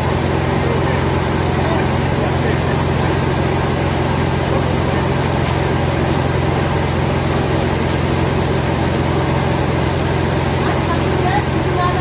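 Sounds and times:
motor running with low drone: 0:00.0 - 0:12.0.

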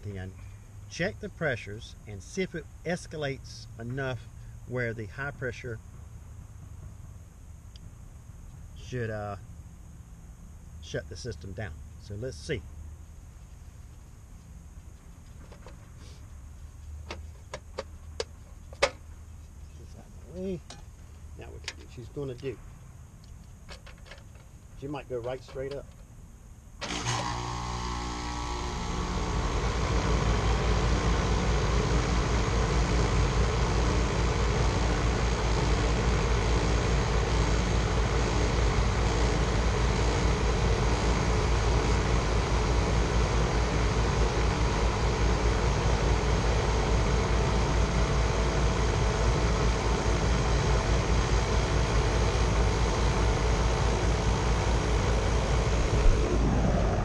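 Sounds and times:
heat pump unit running: 0:26.8 - 0:57.0.

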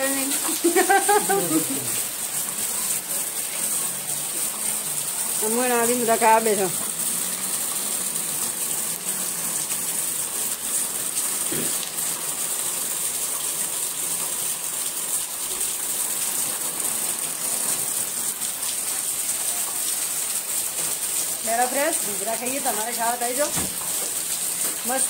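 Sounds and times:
heavy rain falling: 0:00.0 - 0:25.0.

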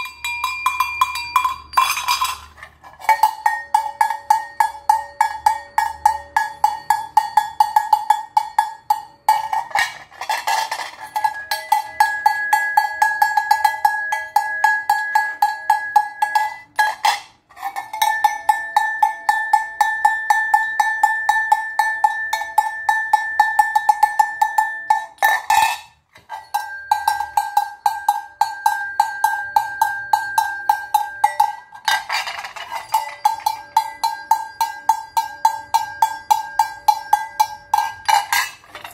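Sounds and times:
cowbells clanking: 0:00.0 - 0:38.9
rattling handling noises: 0:09.4 - 0:11.4, 0:31.7 - 0:33.5, 0:38.0 - 0:38.9.

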